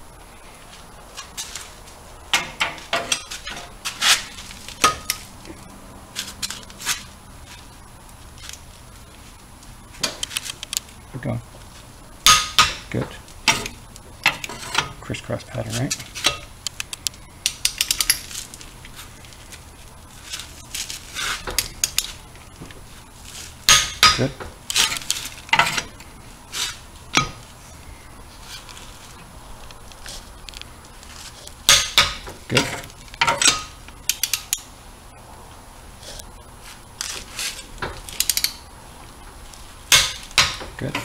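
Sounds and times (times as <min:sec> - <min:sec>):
metallic scraping and clinking: 0:01.1 - 0:07.7, 0:12.2 - 0:16.6, 0:23.2 - 0:27.7, 0:29.8 - 0:34.7
torque wrench clicks: 0:16.6 - 0:18.2, 0:34.1 - 0:34.6, 0:38.1 - 0:38.6.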